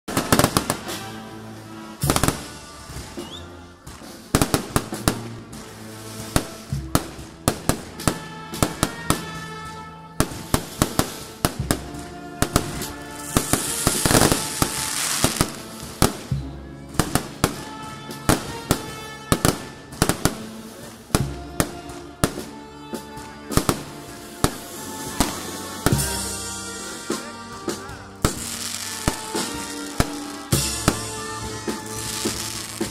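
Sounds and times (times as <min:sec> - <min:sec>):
firecrackers banging: 0:00.1 - 0:32.9
music with held notes: 0:00.1 - 0:32.9
spark fountains hissing: 0:04.0 - 0:08.2, 0:12.5 - 0:16.3, 0:28.2 - 0:31.2.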